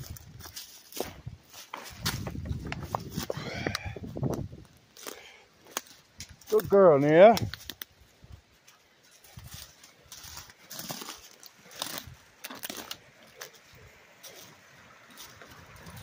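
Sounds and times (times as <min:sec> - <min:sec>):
footsteps crunching on twigs: 0:00.0 - 0:16.0
twigs snapping: 0:01.7 - 0:08.0, 0:09.4 - 0:14.4.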